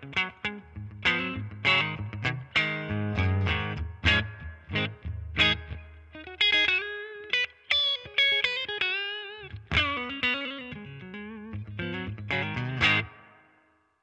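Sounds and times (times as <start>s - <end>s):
electric guitar notes and chords: 0.0s - 13.7s.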